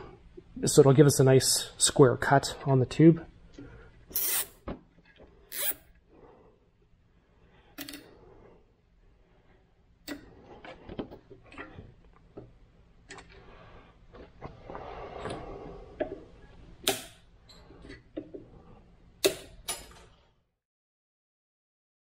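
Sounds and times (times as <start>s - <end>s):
zip ties ratcheting: 4.1s - 4.6s, 5.5s - 5.8s.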